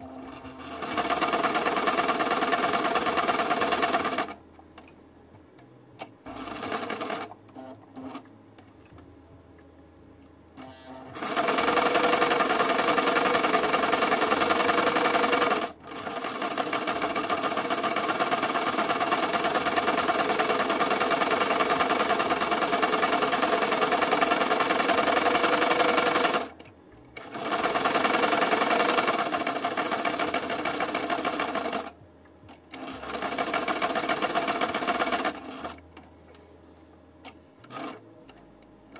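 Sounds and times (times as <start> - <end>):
sewing machine stitching: 0.0 - 4.4, 6.2 - 8.2, 10.6 - 26.6, 27.2 - 32.0, 32.7 - 35.8, 37.6 - 38.0.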